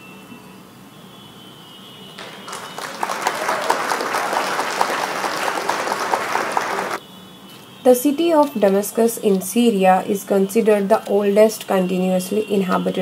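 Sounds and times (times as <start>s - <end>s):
crowd clapping: 2.2s - 7.0s.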